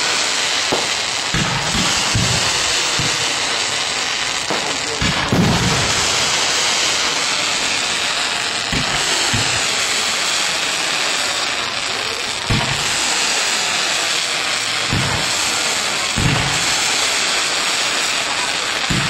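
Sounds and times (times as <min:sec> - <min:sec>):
hiss of burning fireworks: 0:00.0 - 0:19.0
dull thumps of firework shells: 0:00.7 - 0:03.4, 0:12.5 - 0:12.9, 0:14.9 - 0:15.4, 0:16.2 - 0:16.7.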